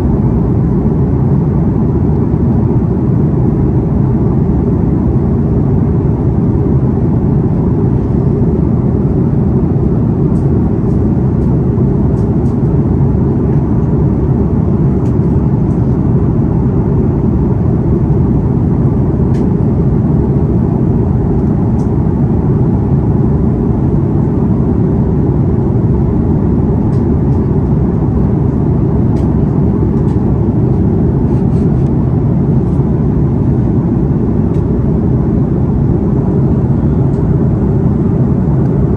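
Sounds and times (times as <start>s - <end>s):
airplane cabin engine roar: 0.0s - 38.9s.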